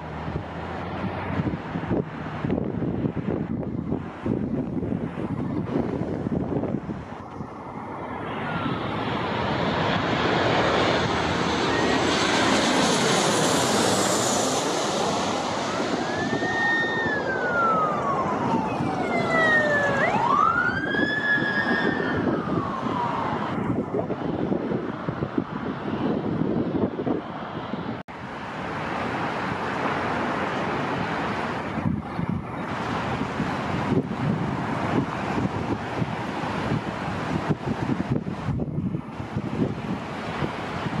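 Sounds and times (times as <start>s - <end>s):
jet plane passing overhead: 0.0s - 41.0s
emergency siren wailing: 7.2s - 24.6s.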